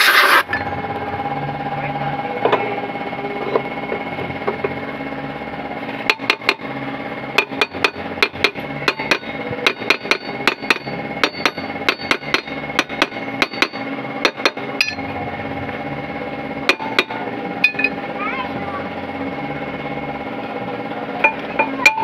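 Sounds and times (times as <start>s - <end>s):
hammer striking metal: 7.4s - 15.0s, 16.7s - 18.0s.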